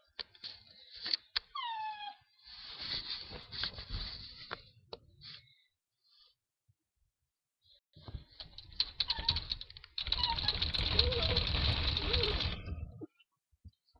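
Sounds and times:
close rustling and scratching: 8.2 - 12.9.

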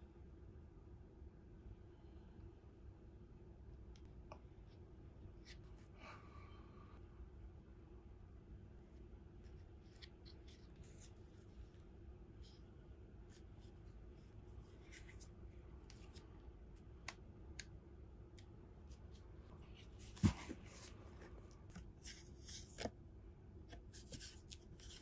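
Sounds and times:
rustling and scraping packaging: 18.9 - 22.9.

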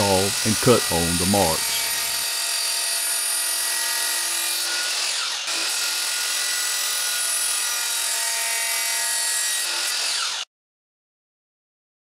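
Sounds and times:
miter saw cutting plastic: 0.0 - 8.2.

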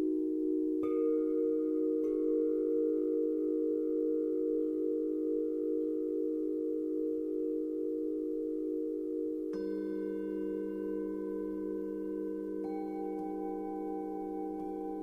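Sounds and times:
singing bowls droning: 0.0 - 15.0
singing bowl strike: 9.1 - 15.0.

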